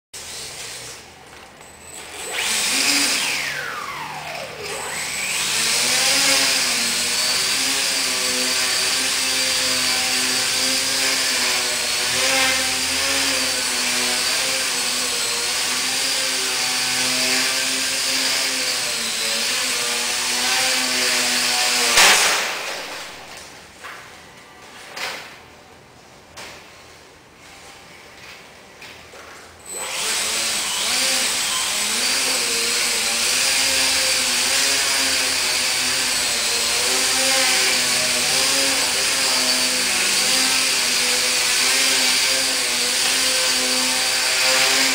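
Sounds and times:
model plane crashing knock: 0:22.0 - 0:23.0.

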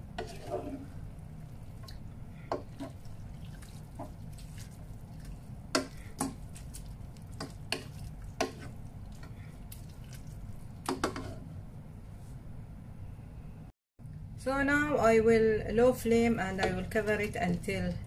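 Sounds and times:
wooden spoon stirring in pot: 0:00.0 - 0:11.5
steady low hum: 0:00.0 - 0:18.0.

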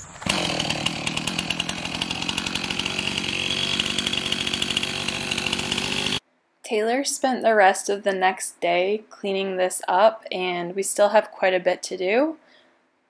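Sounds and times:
chainsaw running: 0:00.0 - 0:06.2.

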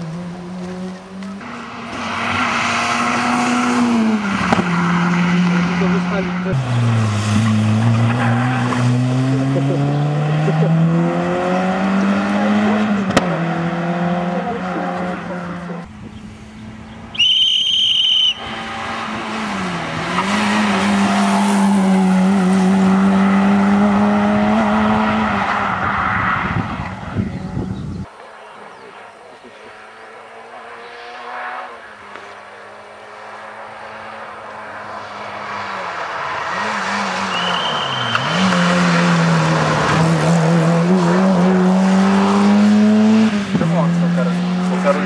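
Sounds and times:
rally car engine revving high: 0:00.0 - 0:17.2, 0:18.3 - 0:45.0
shrill steady whistle: 0:17.2 - 0:18.5, 0:37.3 - 0:38.4.

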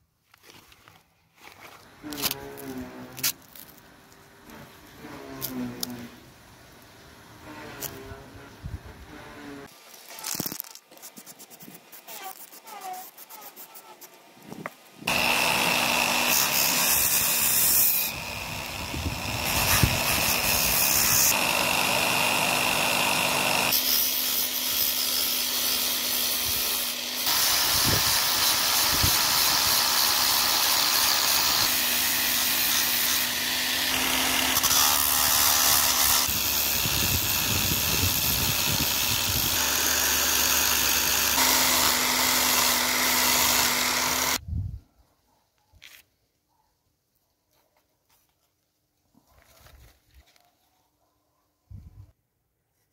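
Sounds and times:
angle grinder grinding wood: 0:01.4 - 0:03.8, 0:04.4 - 0:06.2, 0:07.4 - 0:44.4.

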